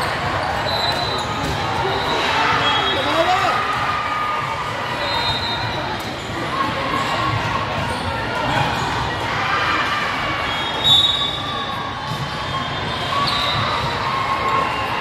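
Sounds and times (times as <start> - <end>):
crowd voices: 0.0 - 15.0
ball bouncing on court: 0.1 - 1.8, 12.0 - 12.6.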